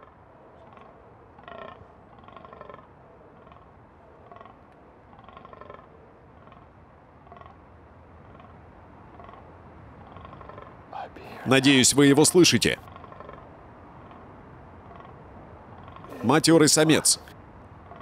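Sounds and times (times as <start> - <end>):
deer groaning: 0.0 - 3.7, 4.3 - 6.7, 9.2 - 13.6, 14.9 - 17.3.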